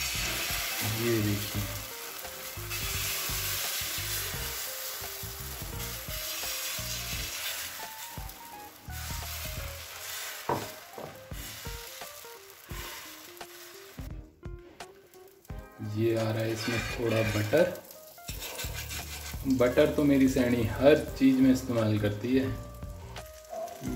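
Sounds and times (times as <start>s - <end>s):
batter sizzling on a griddle: 0.0s - 23.9s
ladle scraping: 16.3s - 19.6s.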